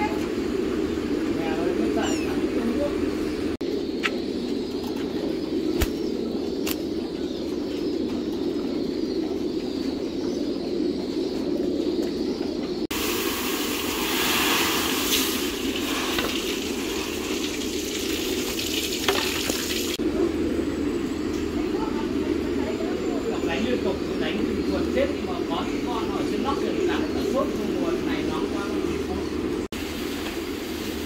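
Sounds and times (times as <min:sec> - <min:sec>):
low background hum: 0:00.0 - 0:31.0
grain pouring into bin: 0:13.0 - 0:20.0.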